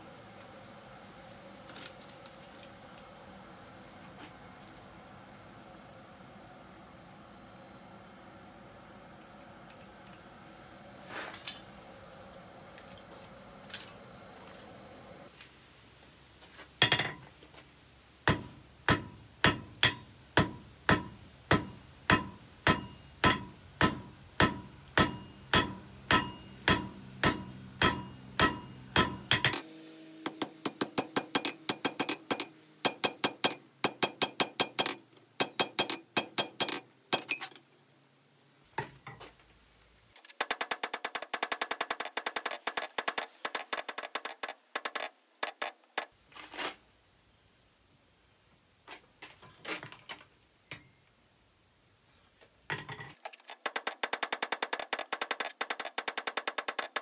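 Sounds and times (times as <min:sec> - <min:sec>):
hammer striking on anvil: 0:16.8 - 0:17.2, 0:18.3 - 0:29.6, 0:30.3 - 0:37.4
anvil ringing: 0:18.3 - 0:29.6.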